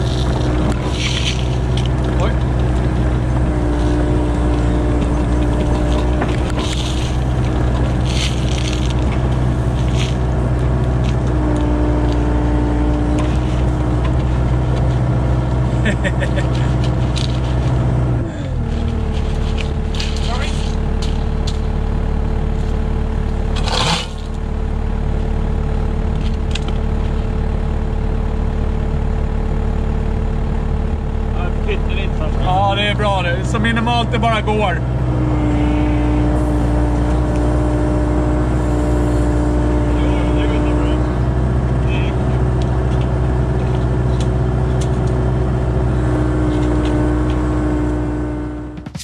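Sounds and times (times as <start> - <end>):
diesel engine idling: 0.0 - 49.0
short scrape: 23.6 - 24.3.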